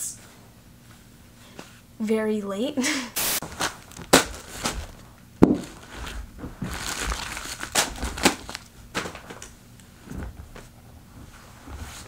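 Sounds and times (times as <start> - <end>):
mailers slapping onto a rug: 3.2 - 9.4
packaging rustling: 3.4 - 9.5
plastic crinkling: 3.4 - 9.5.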